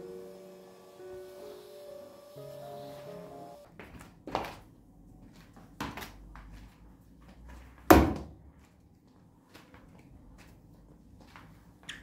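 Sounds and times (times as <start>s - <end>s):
knocks and thuds on tiled floor: 7.9s - 8.4s.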